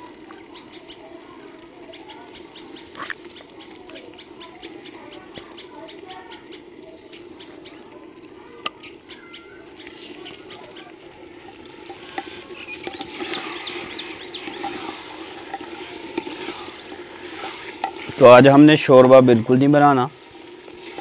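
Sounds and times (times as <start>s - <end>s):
meat sizzling in a pot: 0.0s - 21.0s
metal spatula scraping a pot: 9.8s - 21.0s.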